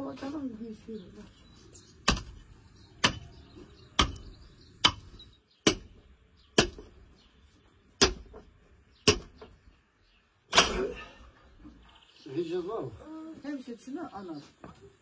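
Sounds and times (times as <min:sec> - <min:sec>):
cleaver chopping meat and bone: 0:02.0 - 0:07.1, 0:07.9 - 0:09.6.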